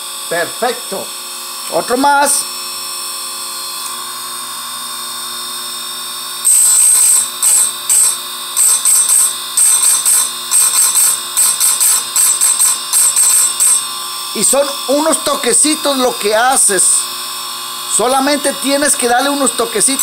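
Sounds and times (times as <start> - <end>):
grinding wheel humming: 6.4 - 20.0.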